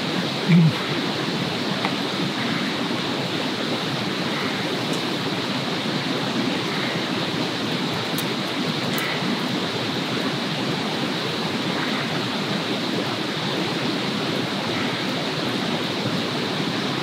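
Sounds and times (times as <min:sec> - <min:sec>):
rushing outdoor background noise: 0:00.0 - 0:17.0
person humming low: 0:00.2 - 0:00.9.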